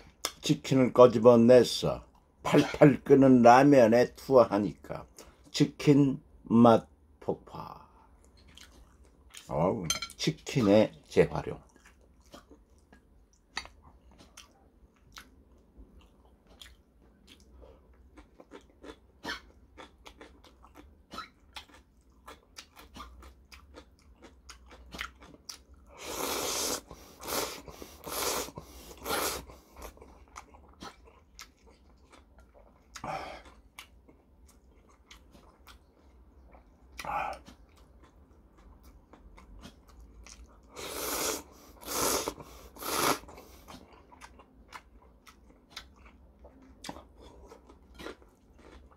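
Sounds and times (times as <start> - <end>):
chewing with wet clicks: 8.2 - 9.5, 11.6 - 25.9, 29.5 - 40.7, 43.3 - 48.9
noodles slurped: 40.7 - 43.8.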